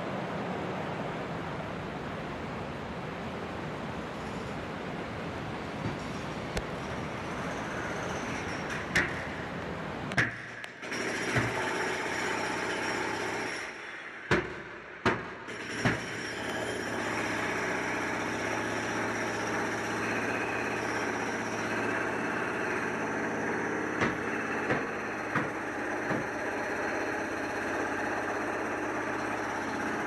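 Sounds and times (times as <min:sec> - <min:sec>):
machine drone with low hum: 0:00.0 - 0:30.0
sharp knocks: 0:08.7 - 0:09.3, 0:10.1 - 0:12.4, 0:14.3 - 0:16.2, 0:24.0 - 0:26.4.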